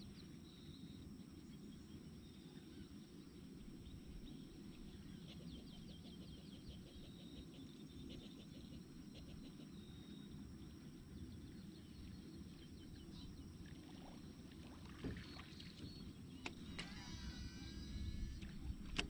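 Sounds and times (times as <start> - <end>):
water and wind rumble: 10.5 - 19.0.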